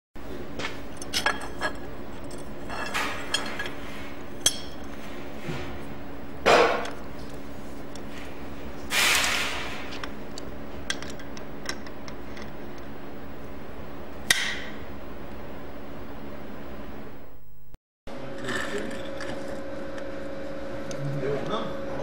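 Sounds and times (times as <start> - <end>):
steady low hum: 0.2 - 22.0
short noisy scrape: 8.9 - 10.0.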